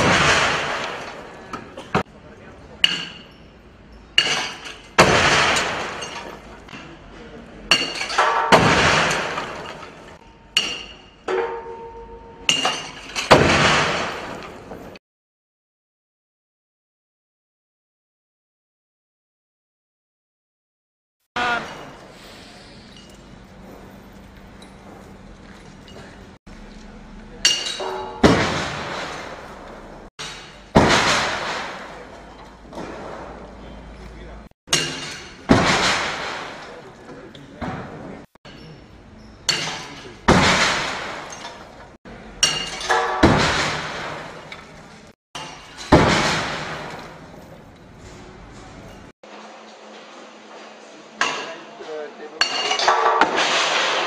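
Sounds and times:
heavy metallic bangs: 0.0 - 2.1, 4.2 - 6.9, 7.7 - 14.8, 27.4 - 33.8, 34.7 - 37.0, 39.4 - 44.8, 45.4 - 47.6
noisy clatter: 0.0 - 2.1, 22.9 - 38.4, 39.5 - 51.4
loud impact bang: 27.8 - 32.1.

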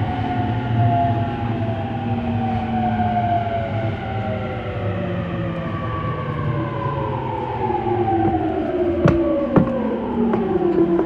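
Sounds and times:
train motor whine: 7.6 - 11.0
train wheels running: 8.2 - 11.0.

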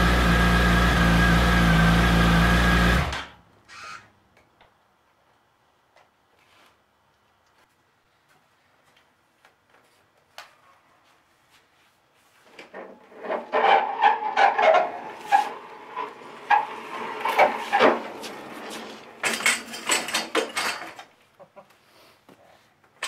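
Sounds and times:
turntable grinding on concrete: 12.7 - 19.8.

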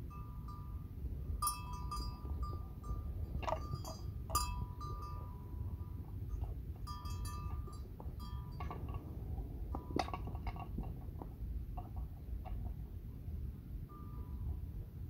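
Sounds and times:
wind rumble on microphone: 0.0 - 15.0
bell clinking: 0.1 - 9.0.

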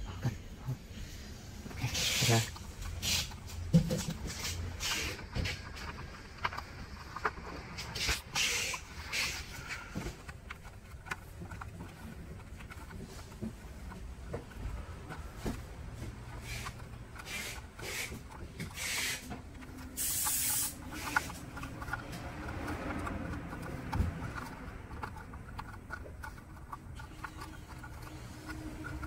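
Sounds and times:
rubber scraping on plastic: 1.7 - 29.0
short hissing swipes: 20.0 - 21.4.

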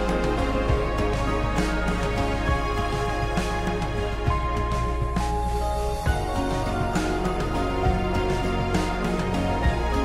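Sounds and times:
background music with steady beat: 0.0 - 10.0.

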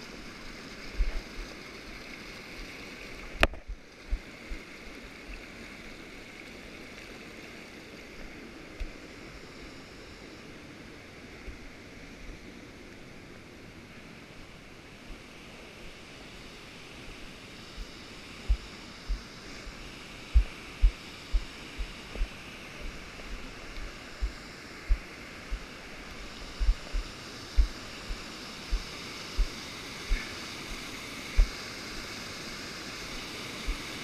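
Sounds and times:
low thumps on microphone: 18.5 - 19.2, 20.3 - 25.7, 26.5 - 30.3, 31.3 - 31.6.

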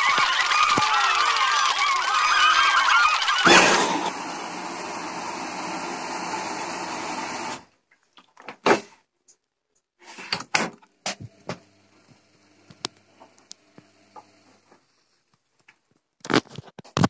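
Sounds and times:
water rushing into washing machine: 0.0 - 7.7.

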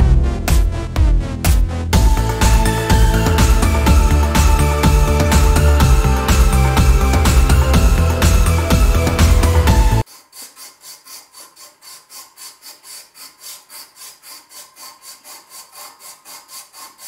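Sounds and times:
emery cloth rubbing on metal: 10.0 - 17.0.

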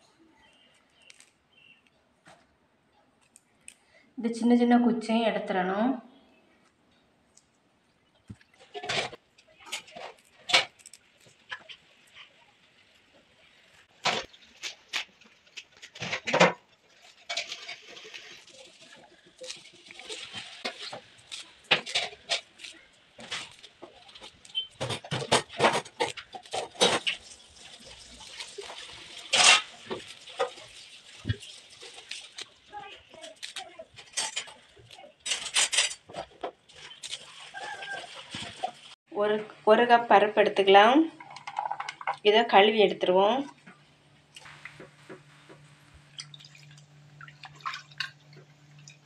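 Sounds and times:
stems snapping crisply: 0.5 - 2.4, 3.2 - 3.8, 9.4 - 12.3, 20.6 - 27.1, 33.2 - 35.9
leaves rustling in steel bowl: 8.6 - 24.8, 26.0 - 39.0.

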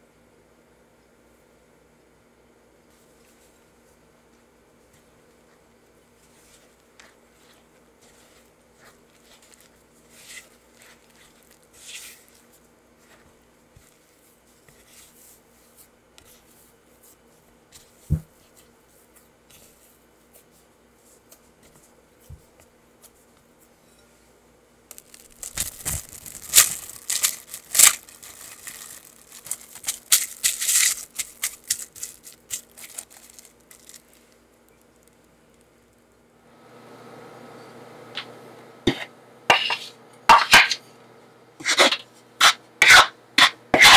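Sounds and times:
spatula scraping dough in bowl: 6.4 - 14.0, 38.9 - 40.8, 41.6 - 43.9
cling film crinkling: 6.6 - 12.5, 24.9 - 36.0.

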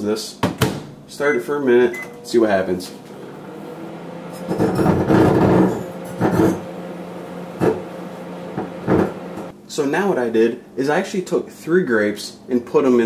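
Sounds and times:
microwave oven humming: 0.6 - 9.6.

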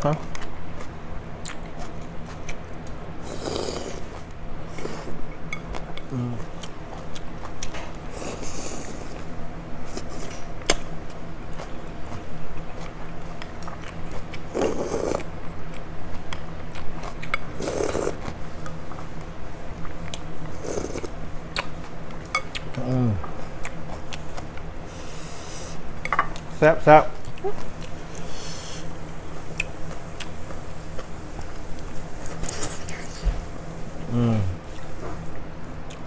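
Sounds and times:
steady low hum: 0.0 - 36.0
chewing: 0.3 - 9.3, 32.2 - 33.3
slurping noodles: 3.2 - 4.1, 14.5 - 15.2, 17.6 - 18.3
person humming mm: 6.1 - 6.5, 22.8 - 23.2, 34.0 - 34.7.

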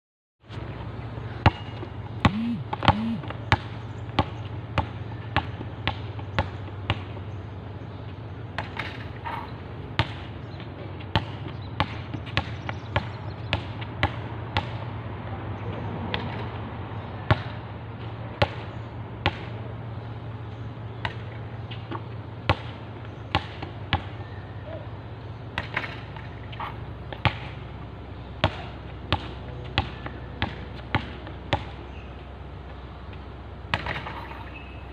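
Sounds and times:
steady low hum: 0.4 - 34.9
basketball bouncing on hard court: 1.4 - 7.2, 10.0 - 10.3, 11.1 - 14.8, 21.0 - 24.2, 27.1 - 27.6, 28.4 - 31.8, 33.7 - 34.3.

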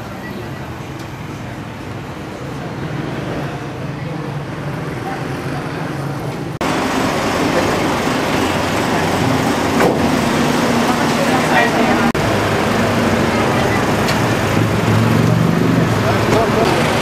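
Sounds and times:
street traffic noise: 0.0 - 17.0
vehicle engine running: 6.6 - 17.0.

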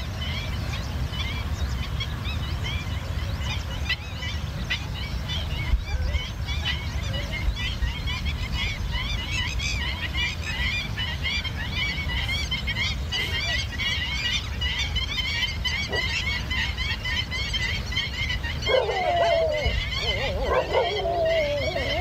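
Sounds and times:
birds chirping: 0.0 - 22.0
whining animal cry: 18.6 - 22.0.

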